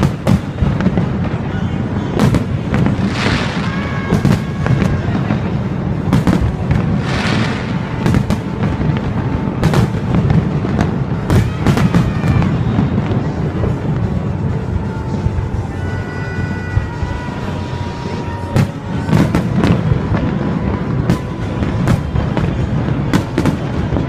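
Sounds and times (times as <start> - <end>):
fireworks bangs: 0.0 - 24.0
fireworks hissing crackle: 0.0 - 24.0.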